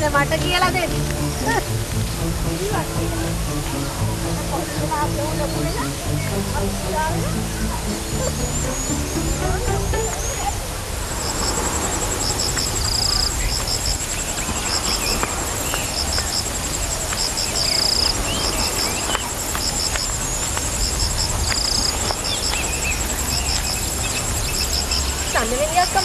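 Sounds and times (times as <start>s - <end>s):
low rumble: 0.0s - 10.8s
insects chirping: 0.0s - 26.0s
insects trilling: 0.0s - 26.0s
bird calls: 0.4s - 10.6s, 12.4s - 26.0s.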